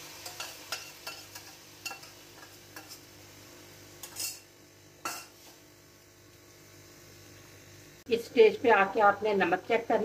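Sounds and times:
metal spoon scraping a pan: 0:00.0 - 0:03.1, 0:04.0 - 0:05.6.

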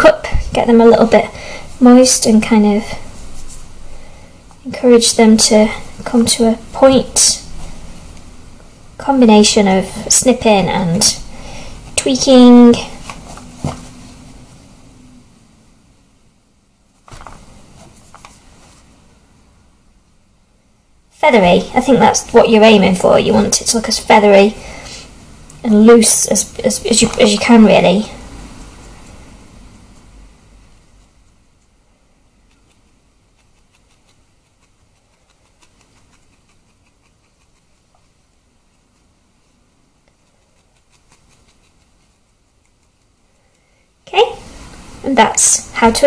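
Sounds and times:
soft clicks and rustles: 0:17.0 - 0:18.9.

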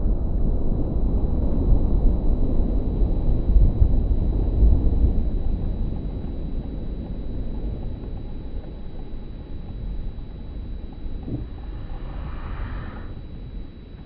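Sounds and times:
slowed firework burst rumble: 0:11.1 - 0:13.7.

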